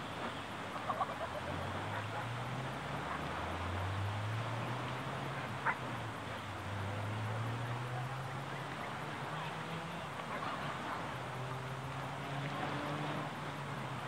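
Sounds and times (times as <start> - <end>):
gentle surf: 0.0 - 14.0
wind: 0.0 - 14.0
distant dog barks: 0.8 - 3.7, 5.4 - 6.0.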